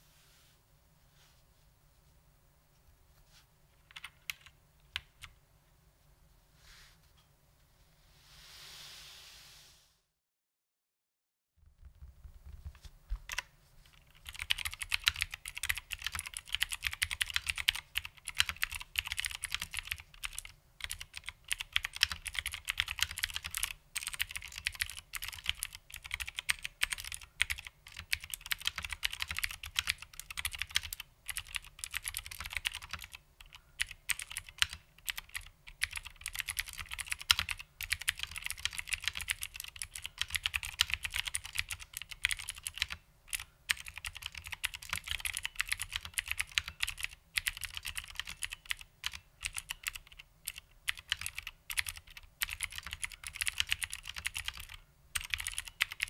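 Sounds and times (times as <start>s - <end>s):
clicky mechanical keyboard typing: 3.8s - 5.4s, 13.2s - 56.0s.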